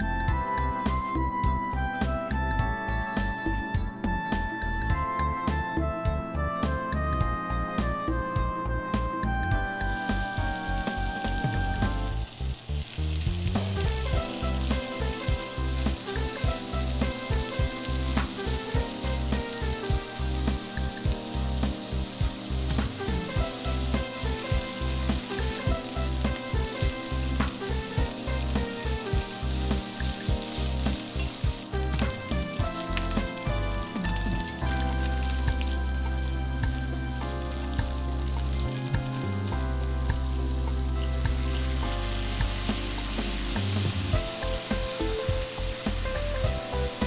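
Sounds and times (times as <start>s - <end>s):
music with steady bass beat: 0.0s - 47.0s
pork sizzling in frying pan: 9.6s - 47.0s.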